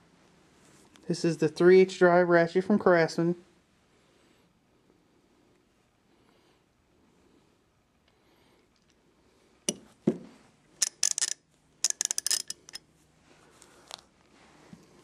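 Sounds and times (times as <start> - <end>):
tools knocking on table: 9.7 - 10.3
metal tools clicking and clinking: 10.8 - 12.8.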